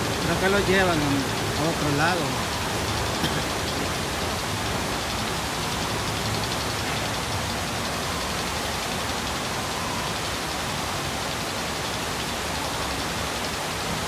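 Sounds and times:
water rushing down chute: 0:00.0 - 0:14.0.

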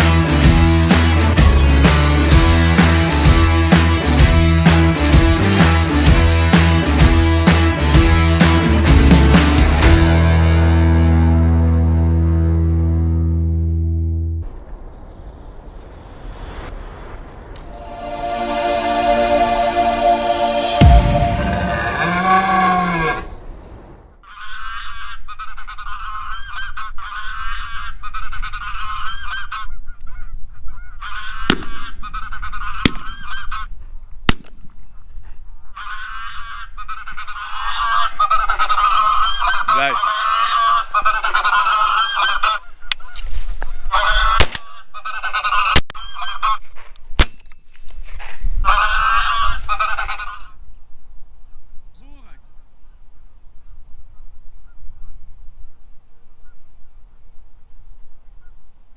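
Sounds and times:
geese honking: 0:17.8 - 0:23.4, 0:24.3 - 0:33.7, 0:35.7 - 0:46.7, 0:48.6 - 0:50.6.

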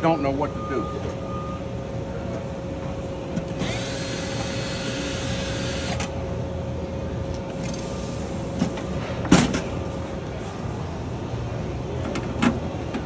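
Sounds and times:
cordless drill running: 0:03.6 - 0:06.1.

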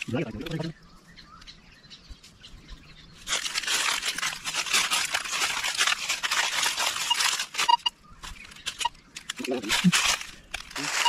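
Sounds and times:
footsteps crunching dry leaves: 0:03.0 - 0:11.0
metal detector coil sweeping leaves: 0:03.2 - 0:11.0.

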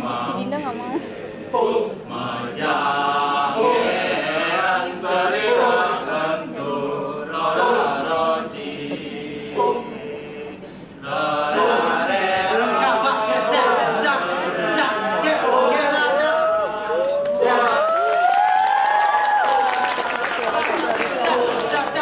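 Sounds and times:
male chorus chanting: 0:00.0 - 0:18.2, 0:19.3 - 0:22.0.

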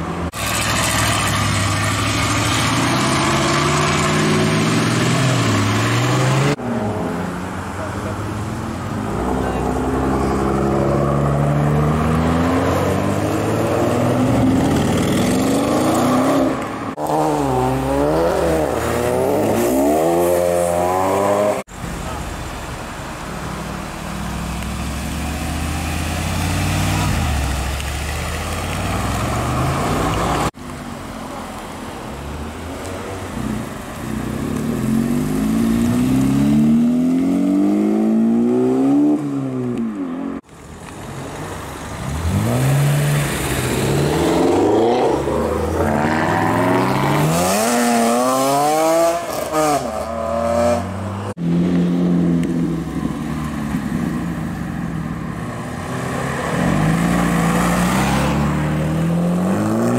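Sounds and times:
car driving off: 0:00.0 - 0:59.9
car engine revving hard: 0:42.1 - 0:50.9.

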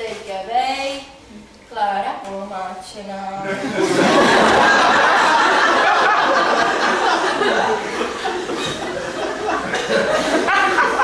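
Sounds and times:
audience laughing: 0:03.4 - 0:11.0.

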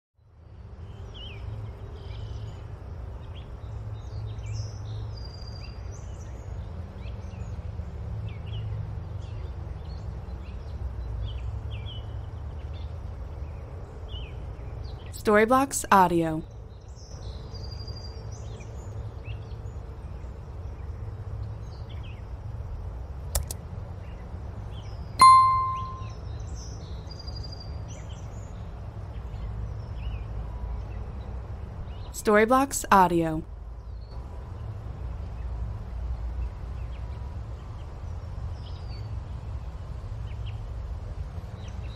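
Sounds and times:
faint bird chirps: 0:25.2 - 0:26.1
high bird trill: 0:25.2 - 0:26.1.

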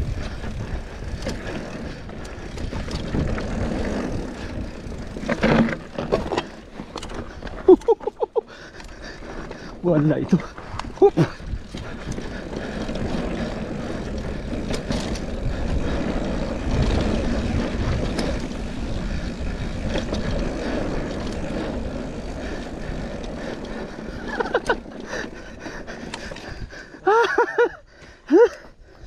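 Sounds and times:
wind rush on microphone: 0:00.0 - 0:05.2, 0:10.5 - 0:24.5
bike rattles and knocks: 0:00.0 - 0:28.6.

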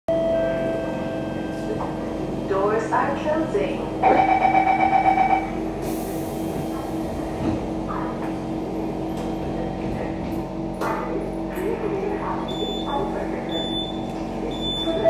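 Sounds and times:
train equipment humming: 0:00.1 - 0:15.0
door warning beeps: 0:04.0 - 0:05.5, 0:12.5 - 0:15.0.

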